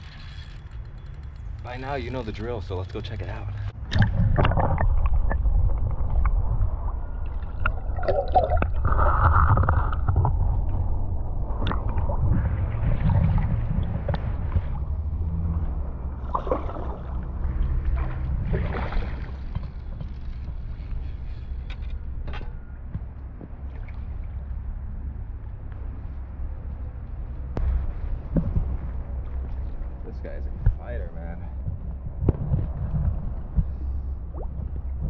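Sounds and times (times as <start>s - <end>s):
underwater river gurgling: 2.0s - 20.0s.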